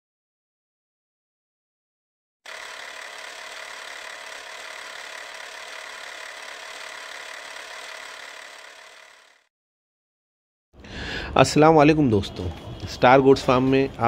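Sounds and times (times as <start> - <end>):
mechanical running and rattling: 2.5 - 9.5.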